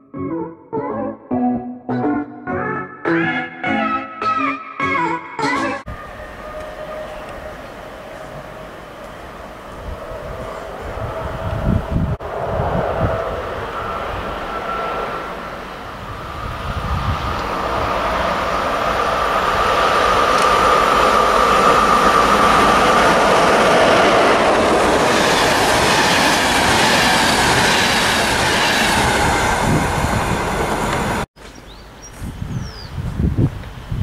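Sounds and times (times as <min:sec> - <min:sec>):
steady high tone: 0:00.0 - 0:29.6
train wheels rolling on rails: 0:06.0 - 0:31.3.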